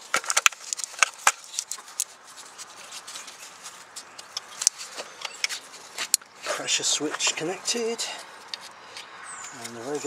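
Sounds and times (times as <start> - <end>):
plastic gloves crinkling: 0.0 - 6.6.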